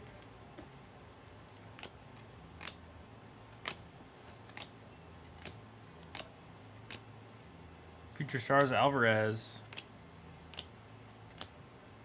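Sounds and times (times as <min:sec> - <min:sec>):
trading cards flicked clicking: 0:01.5 - 0:02.8, 0:03.5 - 0:07.1, 0:09.6 - 0:11.6.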